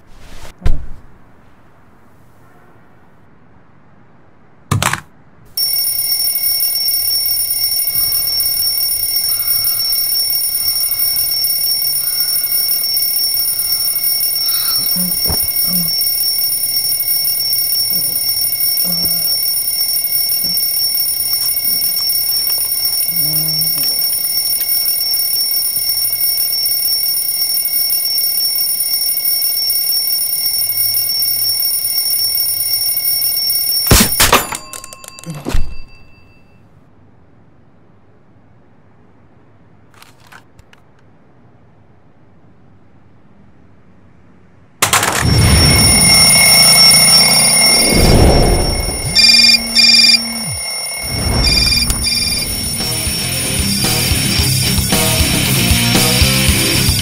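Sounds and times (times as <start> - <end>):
alarm clock bells ringing: 5.6 - 36.6, 44.8 - 57.0.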